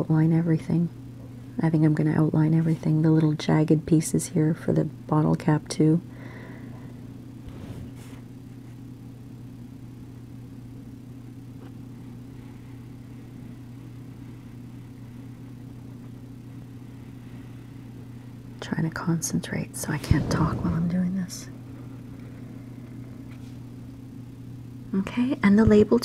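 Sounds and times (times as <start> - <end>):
low hum: 19.4 - 24.9.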